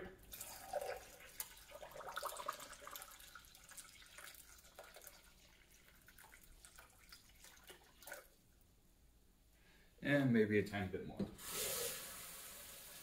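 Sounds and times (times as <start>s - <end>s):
water trickling into a pot: 0.2s - 8.4s.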